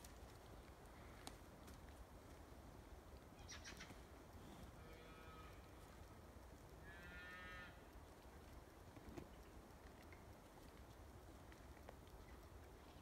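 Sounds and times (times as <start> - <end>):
twigs crackling: 0.0 - 4.0
forest background: 0.0 - 13.0.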